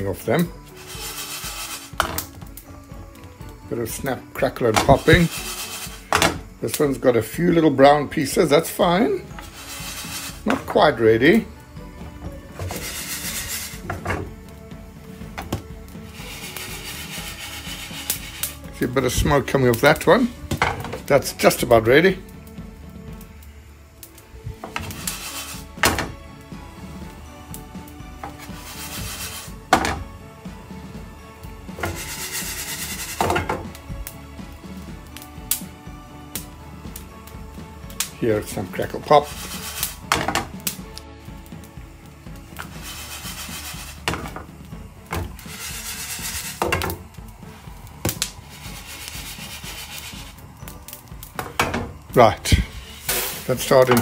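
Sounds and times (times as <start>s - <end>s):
background music: 0.0s - 54.0s
seeds rasping in frying pan: 0.0s - 54.0s
seeds rattling in shaken pan: 0.7s - 2.0s, 4.9s - 6.1s, 9.4s - 11.0s, 12.7s - 13.8s, 16.1s - 18.6s, 24.8s - 25.7s, 28.4s - 29.6s, 31.8s - 33.4s, 39.0s - 40.1s, 42.6s - 44.2s, 45.4s - 46.8s, 48.4s - 50.4s
pan knocking on stove grate: 1.1s - 2.5s, 4.6s - 6.5s, 12.0s - 14.4s, 15.3s - 18.5s, 20.5s - 21.2s, 24.6s - 26.2s, 28.2s - 30.2s, 31.7s - 33.8s, 39.3s - 40.8s, 42.6s - 47.1s, 51.3s - 54.0s
seeds popping: 4.8s - 6.2s, 48.0s - 51.4s.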